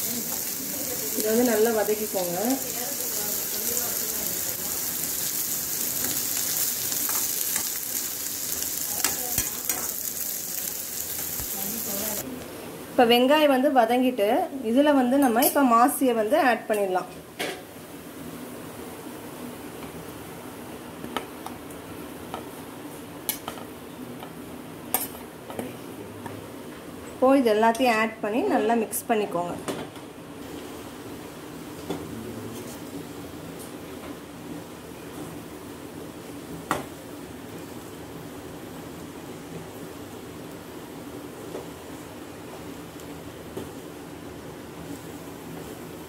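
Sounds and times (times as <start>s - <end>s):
onions sizzling in hot oil: 0.0s - 12.2s.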